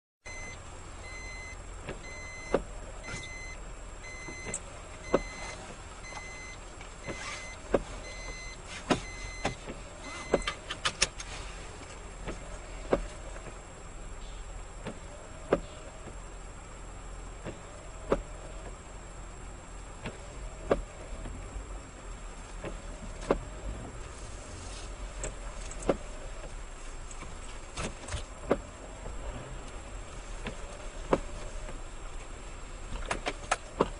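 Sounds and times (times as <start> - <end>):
engine and road hum: 0.2 - 33.9
electronic beep: 0.3 - 10.5
windshield wipers sweeping: 0.3 - 33.9
wiper motor whine: 0.3 - 33.9.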